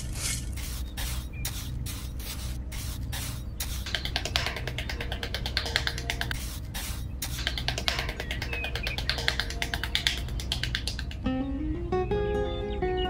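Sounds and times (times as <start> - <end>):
trowel scraping sand: 0.0 - 9.4.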